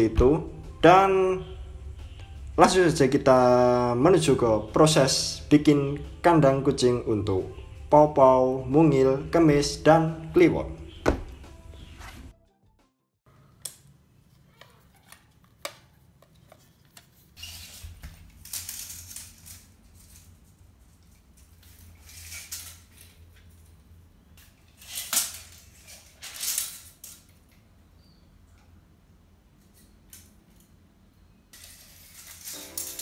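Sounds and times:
tape measure blade scraping floor: 0:16.4 - 0:23.3, 0:24.6 - 0:27.2, 0:31.5 - 0:33.0.

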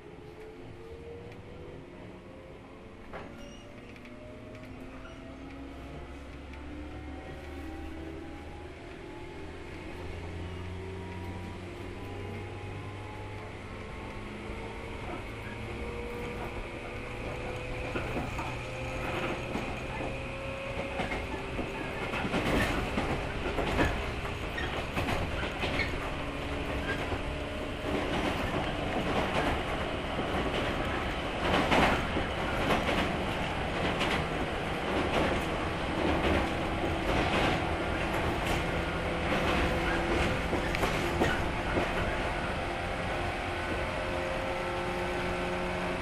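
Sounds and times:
steady train rumble: 0:00.0 - 0:46.0
train wheels clacking over rail joints: 0:15.0 - 0:42.6.

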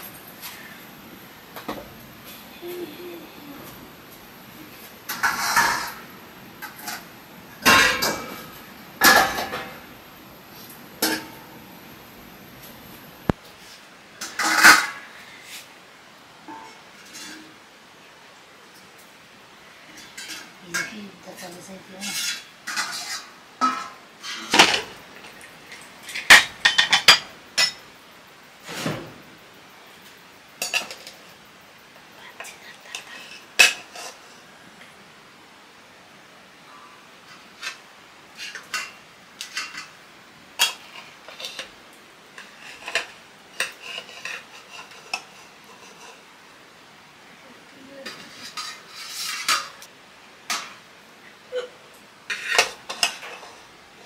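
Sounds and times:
metal utensils scraping pots: 0:04.6 - 0:09.9, 0:10.6 - 0:11.5, 0:19.9 - 0:27.8, 0:37.4 - 0:40.0, 0:42.4 - 0:46.2, 0:48.0 - 0:49.9, 0:52.3 - 0:53.7
metal pots clanking: 0:05.0 - 0:10.0, 0:10.6 - 0:11.6, 0:16.5 - 0:17.5, 0:22.0 - 0:27.8.

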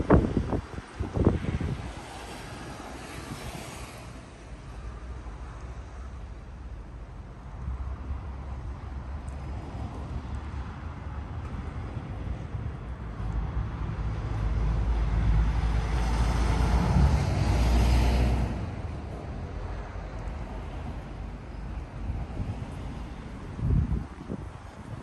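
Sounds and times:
wind rumble on microphone: 0:00.0 - 0:25.0
vehicle passing: 0:13.2 - 0:21.4.

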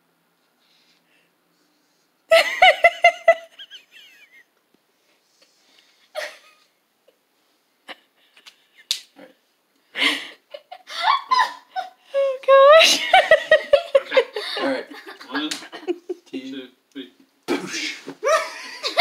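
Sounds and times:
person giggling: 0:10.2 - 0:16.4.

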